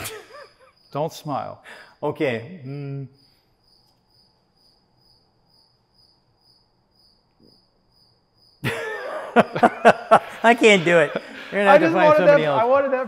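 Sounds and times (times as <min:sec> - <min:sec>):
cricket chirping: 0:00.0 - 0:13.0
person speaking: 0:09.7 - 0:13.0.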